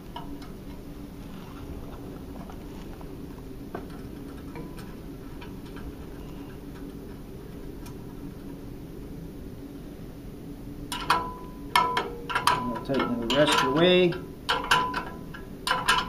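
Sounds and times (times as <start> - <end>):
low steady hum: 0.0 - 16.0
nuts clicking onto bolts: 10.9 - 16.0.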